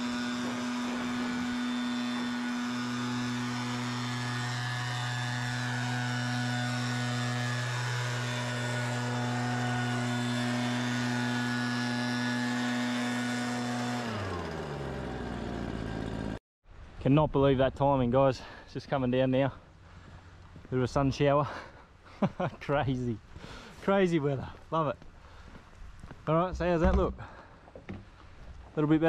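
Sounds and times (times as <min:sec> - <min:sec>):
leaf blower engine running: 0:00.0 - 0:16.4.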